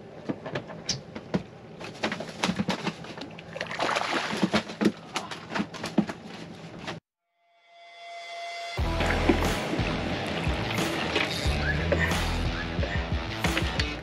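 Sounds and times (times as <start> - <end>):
fish splashing and thrashing: 2.1 - 5.2, 8.8 - 12.4.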